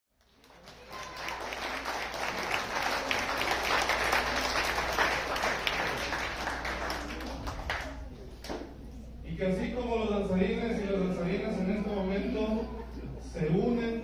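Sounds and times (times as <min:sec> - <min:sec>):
audience applauding: 0:00.1 - 0:08.1.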